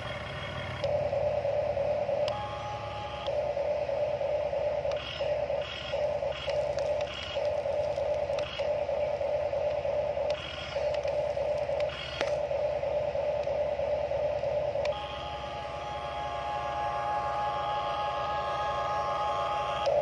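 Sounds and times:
toy excavator motors whining: 4.8s - 9.4s, 10.3s - 12.4s.

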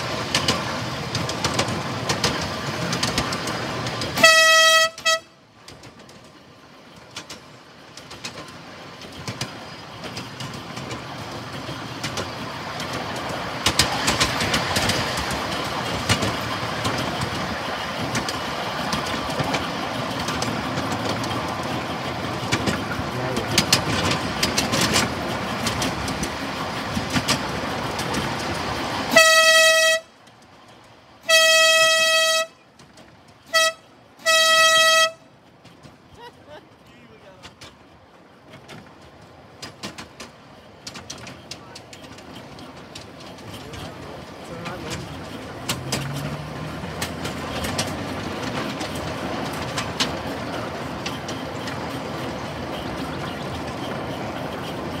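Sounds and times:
miniature train rumbling on track: 0.0s - 55.0s
wheels clicking on rails: 0.0s - 55.0s
locomotive horn toots: 4.1s - 5.4s, 29.1s - 30.2s, 31.2s - 32.6s, 33.4s - 35.3s.

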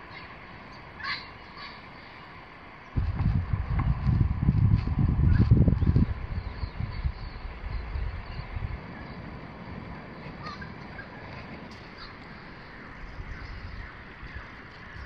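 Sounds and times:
faint bird calls: 0.0s - 3.0s, 10.1s - 15.0s
low coastal rumble: 0.0s - 15.0s.

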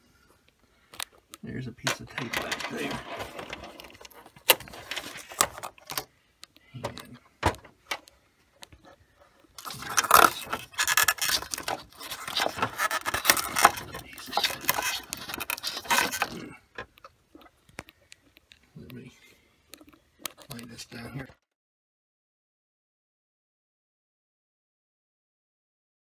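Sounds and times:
tape peeling crackle: 9.6s - 16.4s.

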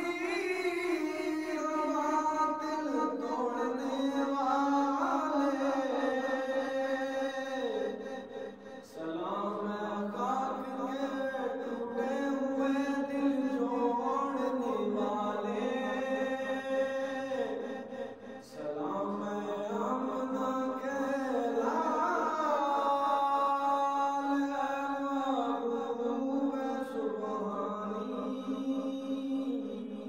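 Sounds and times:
young man chanting: 0.0s - 30.0s.

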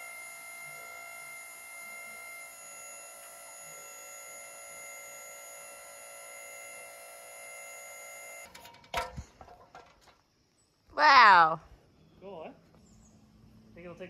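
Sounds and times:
crane power unit hum-whine: 0.0s - 10.3s.

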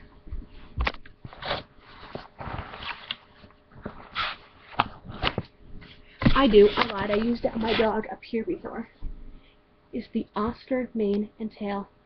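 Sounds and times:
items rustling in a box: 6.3s - 8.0s.

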